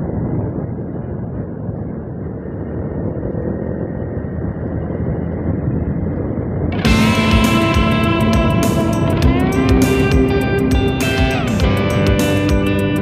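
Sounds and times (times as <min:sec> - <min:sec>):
wind rumble: 0:00.0 - 0:13.0
motorcycle engine: 0:06.8 - 0:13.0.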